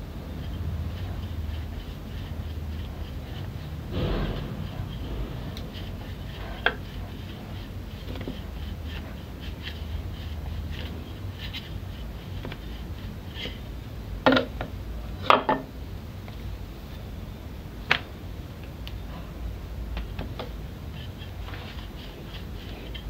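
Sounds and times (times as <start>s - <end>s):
rolling pin scraping dough: 0.0s - 14.7s, 20.0s - 23.0s
steady low hum: 0.0s - 23.0s.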